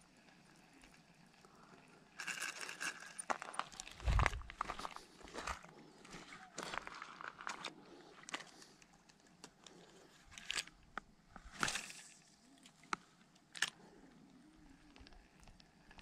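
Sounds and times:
footsteps crunching on pebbles: 0:03.2 - 0:07.7.

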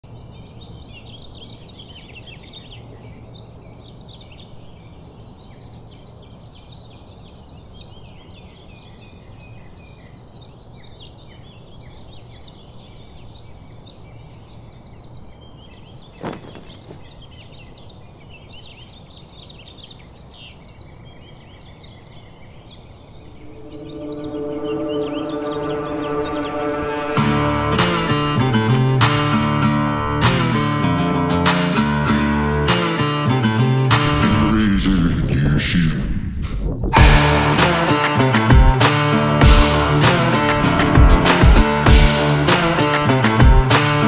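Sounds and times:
small birds chirping: 0:00.0 - 0:26.0.

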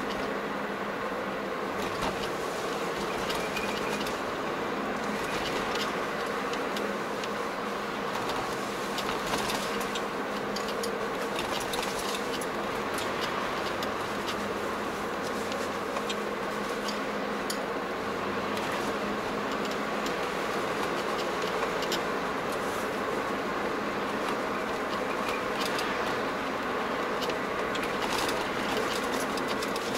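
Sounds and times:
car road and engine noise: 0:00.0 - 0:29.9
light clicks and rattles: 0:24.1 - 0:26.4, 0:27.0 - 0:29.9.

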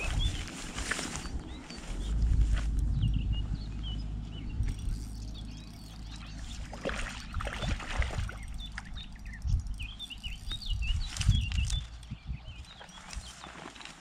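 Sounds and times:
rustling noise: 0:00.0 - 0:03.0
wind rumbling on microphone: 0:00.0 - 0:13.7
small birds chirping: 0:00.0 - 0:14.0.

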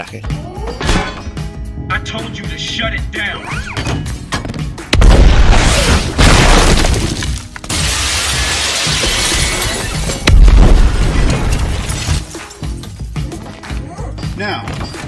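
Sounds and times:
background music: 0:00.0 - 0:15.0
glass shattering: 0:05.1 - 0:12.7.

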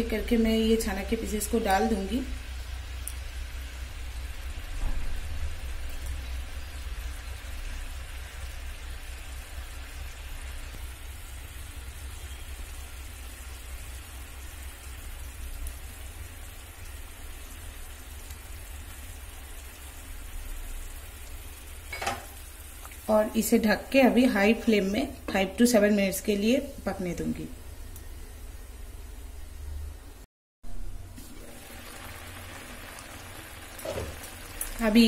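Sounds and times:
syrup boiling and bubbling: 0:02.2 - 0:24.8, 0:30.7 - 0:35.0.

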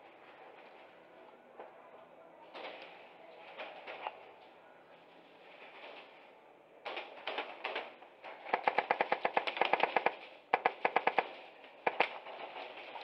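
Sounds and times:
airsoft rifles firing bursts: 0:06.9 - 0:12.3.

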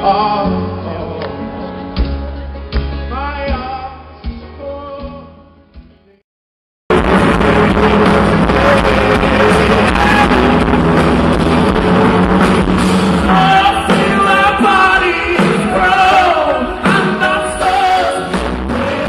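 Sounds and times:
lead vocal singing: 0:00.0 - 0:01.8, 0:06.9 - 0:12.4, 0:13.1 - 0:19.0
live rock-pop band: 0:00.0 - 0:06.2, 0:06.9 - 0:19.0.

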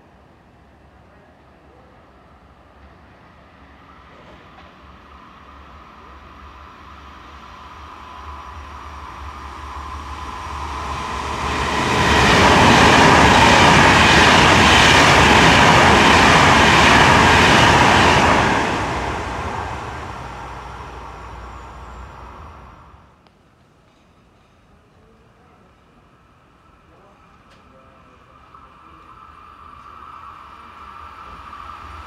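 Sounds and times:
train passing at speed: 0:00.0 - 0:32.0
steady high whine: 0:04.9 - 0:23.2, 0:26.6 - 0:32.0.

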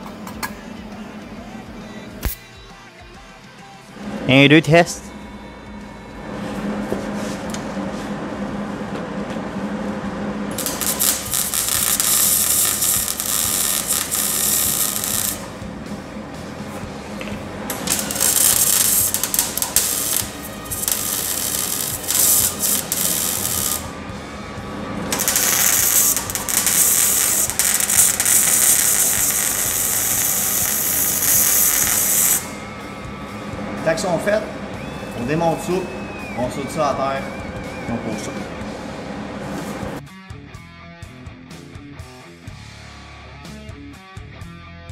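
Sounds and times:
welder arc crackling and hissing: 0:02.2 - 0:02.5, 0:09.5 - 0:37.3
low hum: 0:04.0 - 0:40.0.

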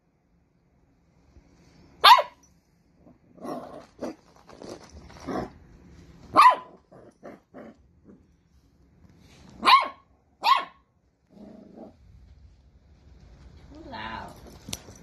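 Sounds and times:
puppy barking: 0:02.0 - 0:02.4, 0:06.3 - 0:06.9, 0:09.6 - 0:10.9.

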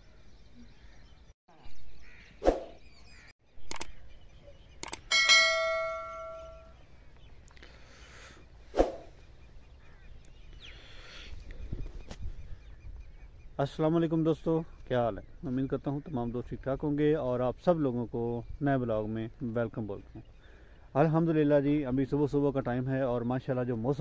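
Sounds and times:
bell-like ding: 0:05.1 - 0:06.8.

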